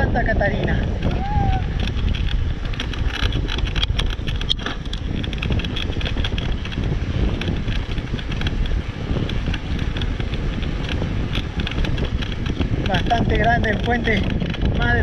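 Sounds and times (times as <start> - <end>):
wind buffeting microphone: 0.0 - 15.0
bicycle clicks and rattles: 0.1 - 15.0.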